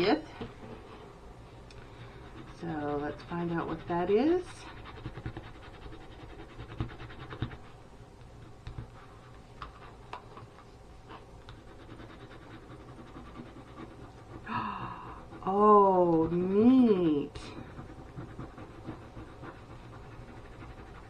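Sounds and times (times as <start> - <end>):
fine scratching: 1.9 - 7.8, 11.1 - 21.0.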